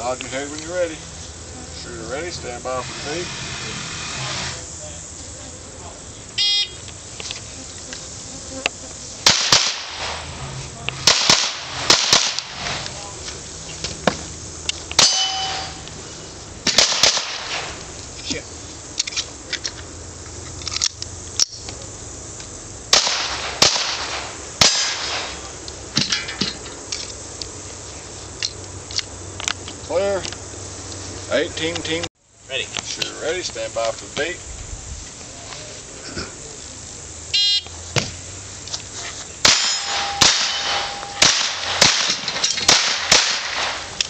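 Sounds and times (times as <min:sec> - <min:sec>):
pistol shots: 0:09.2 - 0:10.2, 0:11.0 - 0:12.7, 0:16.6 - 0:17.8, 0:22.9 - 0:25.4, 0:39.4 - 0:43.9
steel plates clanging: 0:15.0 - 0:15.9, 0:39.4 - 0:42.7.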